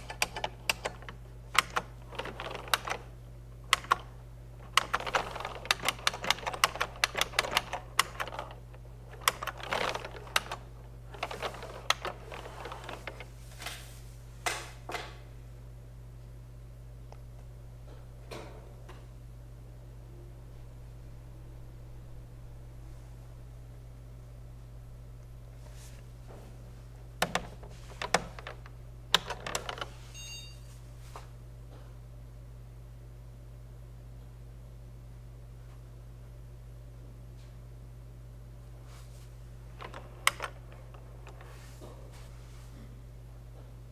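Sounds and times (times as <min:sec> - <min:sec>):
keyboard keys clicking: 0:00.0 - 0:03.0, 0:03.7 - 0:04.1, 0:04.7 - 0:13.2
steady low hum: 0:00.0 - 0:43.9.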